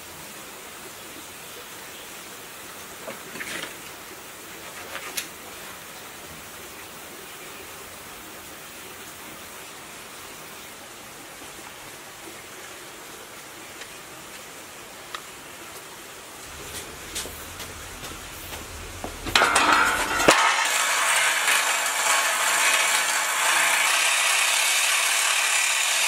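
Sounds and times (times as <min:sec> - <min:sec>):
steady hiss: 0:14.8 - 0:21.6.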